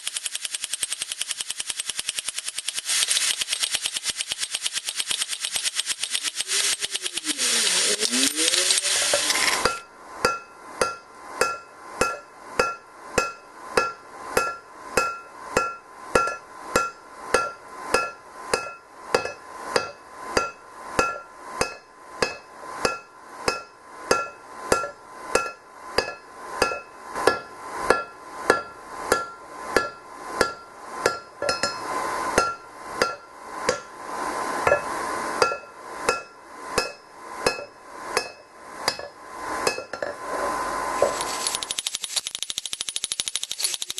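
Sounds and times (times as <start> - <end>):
hammer striking hot steel on anvil: 9.6 - 34.0, 34.6 - 40.2.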